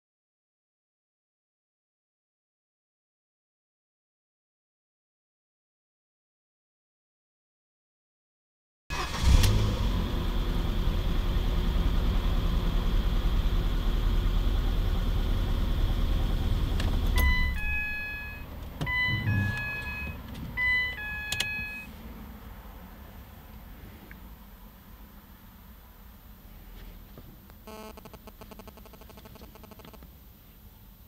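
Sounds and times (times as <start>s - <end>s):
car engine running: 8.9s - 22.0s.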